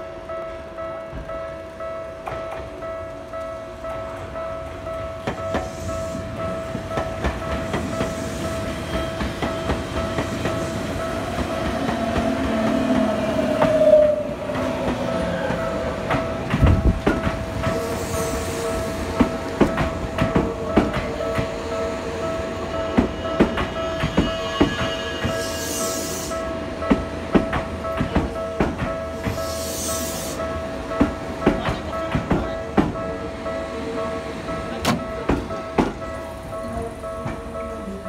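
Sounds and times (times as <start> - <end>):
electric train rolling past: 0.0 - 38.0
wavering wheel squeal: 23.1 - 26.3.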